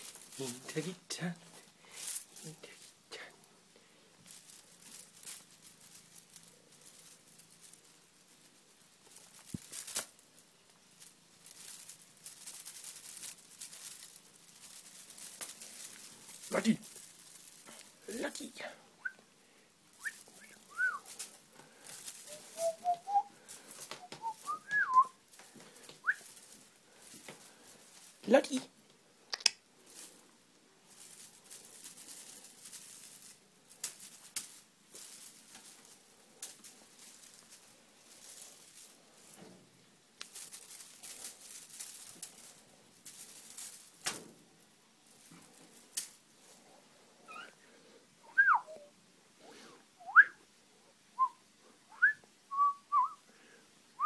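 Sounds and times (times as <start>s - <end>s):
person whistling: 20.0s - 21.1s, 22.6s - 23.3s, 24.0s - 25.2s, 48.3s - 48.9s, 51.2s - 53.2s
sharp clicks: 29.3s - 29.6s.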